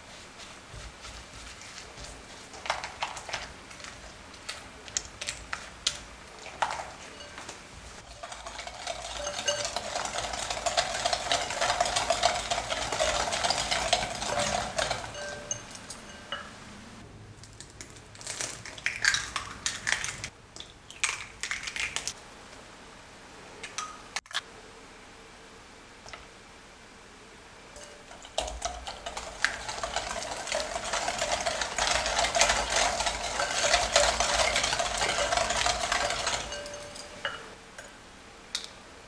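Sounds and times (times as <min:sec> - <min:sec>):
eggs cracking: 0:00.0 - 0:16.4, 0:17.6 - 0:22.2, 0:27.8 - 0:37.5
wire whisk scraping glass bowl: 0:05.2 - 0:16.5, 0:27.8 - 0:37.5.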